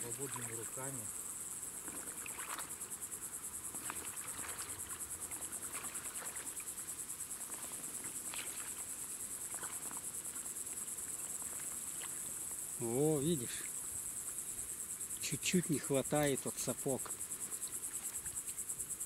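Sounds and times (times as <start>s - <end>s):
splashes of wading in water: 0.0s - 1.0s, 1.6s - 3.0s, 3.6s - 14.4s
insects chirping: 0.0s - 19.0s.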